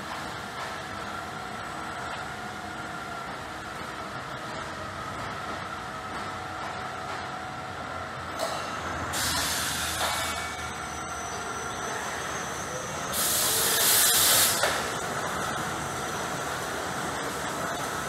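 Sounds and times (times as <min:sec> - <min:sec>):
compressed air hiss: 0:09.2 - 0:10.0, 0:13.1 - 0:14.9.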